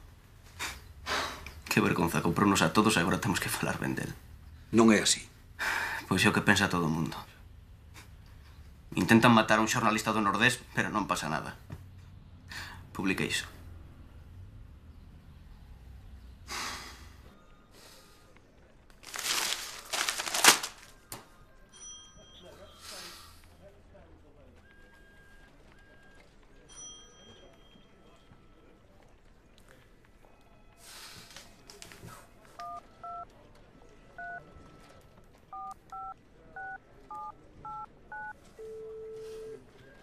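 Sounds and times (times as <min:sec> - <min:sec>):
newspaper pages rustling: 0:18.8 - 0:21.2
phone keypad beeps: 0:32.6 - 0:33.3, 0:34.2 - 0:34.4, 0:35.5 - 0:39.6.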